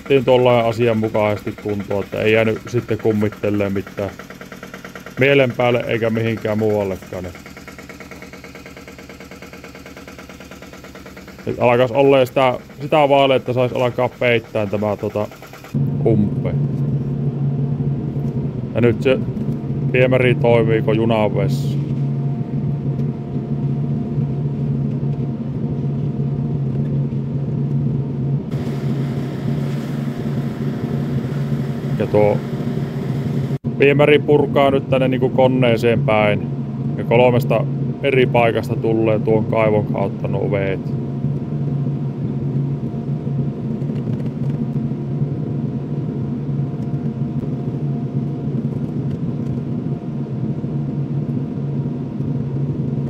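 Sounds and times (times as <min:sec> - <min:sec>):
excavator diesel engine droning: 0:00.0 - 0:17.2, 0:28.5 - 0:40.8
hiss: 0:12.5 - 0:15.8, 0:28.5 - 0:33.6.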